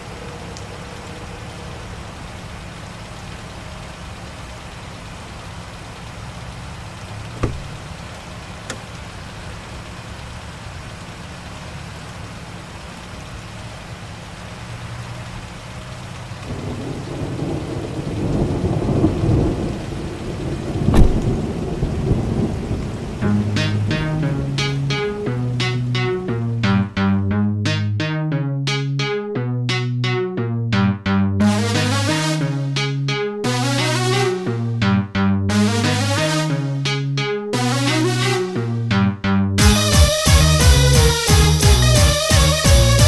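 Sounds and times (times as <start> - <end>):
steady rain: 0.0 - 29.1, 30.8 - 43.0
thunder rumbling and cracking: 16.4 - 24.4.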